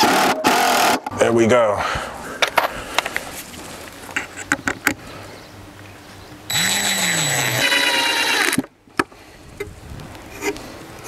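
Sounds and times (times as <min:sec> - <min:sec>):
cordless drill driving a screw: 0:06.5 - 0:08.6.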